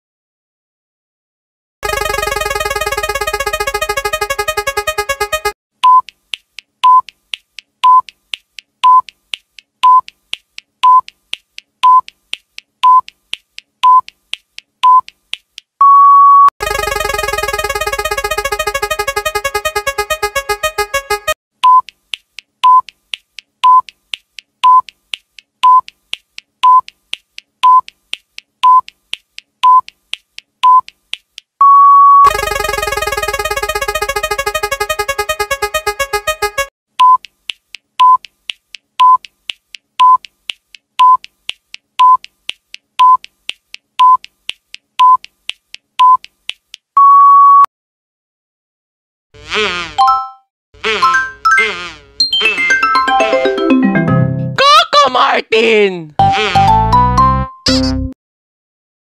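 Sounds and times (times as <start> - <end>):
synthesized jingle with ticking: 1.8 - 5.6, 16.6 - 21.4, 32.2 - 36.7
timer beeping: 1.8 - 6.2, 6.8 - 7.2, 7.8 - 8.1, 8.8 - 9.2, 9.8 - 10.1, 10.8 - 11.1, 11.8 - 12.1, 12.8 - 13.1, 13.8 - 14.1, 15.8 - 22.0, 22.6 - 22.9, 23.6 - 23.9, 24.6 - 24.9, 26.6 - 26.9, 27.6 - 27.9, 28.6 - 28.9, 29.6 - 29.9, 30.6 - 30.9, 38.0 - 38.3, 41.0 - 41.3, 42.0 - 42.3, 43.0 - 43.3, 44.0 - 44.3, 45.0 - 45.2.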